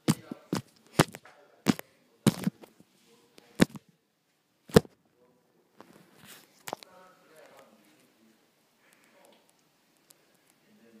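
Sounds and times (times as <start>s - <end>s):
faint rustling: 5.7s - 10.7s.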